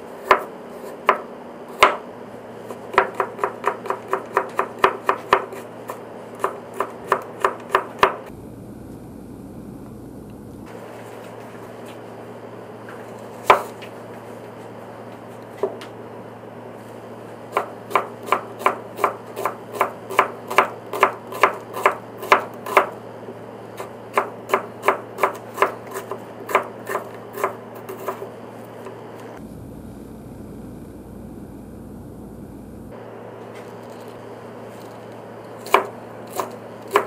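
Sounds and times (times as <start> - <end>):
knife slicing onion: 0.0 - 8.3, 13.2 - 13.8, 17.4 - 29.2, 33.6 - 37.0.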